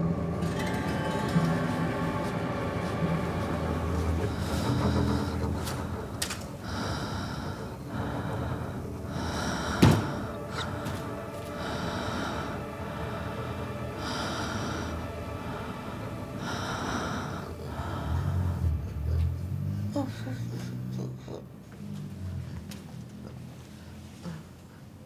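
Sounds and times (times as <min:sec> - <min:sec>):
heavy breathing: 0:02.4 - 0:25.0.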